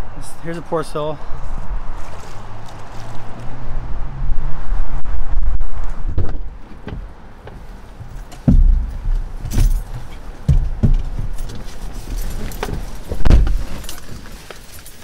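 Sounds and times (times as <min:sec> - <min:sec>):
thumps and knocks in truck cab: 0:06.1 - 0:13.9
rustling: 0:06.3 - 0:15.0
low rumble: 0:08.5 - 0:11.4
keys jangling: 0:09.4 - 0:10.2, 0:11.3 - 0:15.0.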